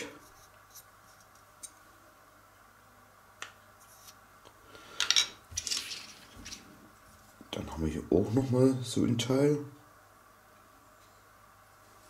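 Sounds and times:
low steady hum: 0.0s - 12.0s
plastic parts clattering: 5.0s - 6.6s.

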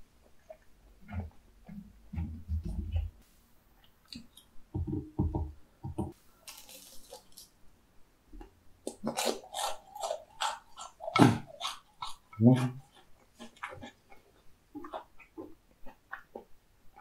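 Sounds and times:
crisp crunches of fried food: 6.4s - 7.6s
wet chewing: 8.8s - 17.0s.

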